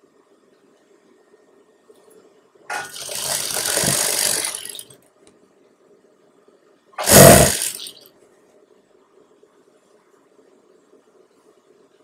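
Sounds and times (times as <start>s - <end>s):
sewing machine stitching fabric: 2.7s - 4.9s, 7.0s - 8.0s.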